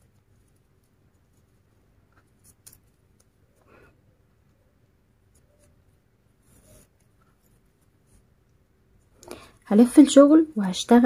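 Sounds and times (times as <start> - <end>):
cord rubbing rustles: 0.0 - 3.7, 5.2 - 9.6.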